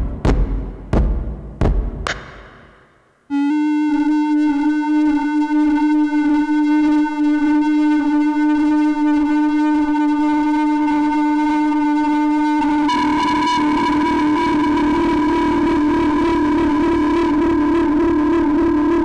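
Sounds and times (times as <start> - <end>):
synthesizer holding a steady note: 12.6 - 19.0.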